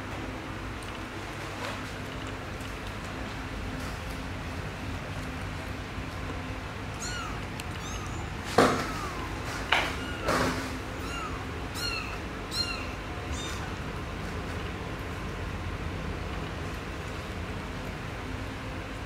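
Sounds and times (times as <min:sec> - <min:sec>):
kitten mewing: 0:06.9 - 0:13.8
thumps and rustles: 0:08.4 - 0:10.8.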